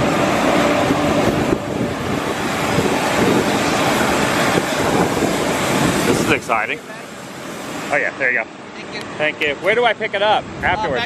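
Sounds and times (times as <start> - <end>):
wind on microphone: 0.0 - 6.6, 10.4 - 11.0
jet and ground equipment hum: 0.0 - 10.7.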